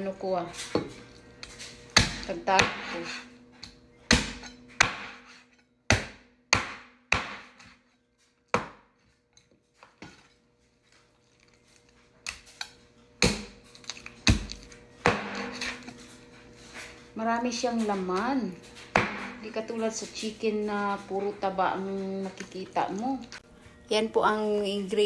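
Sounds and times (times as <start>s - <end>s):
cleaver chopping on wooden board: 1.9s - 3.2s, 4.1s - 7.8s, 8.5s - 8.9s, 13.2s - 13.6s, 14.2s - 15.8s, 19.0s - 19.4s.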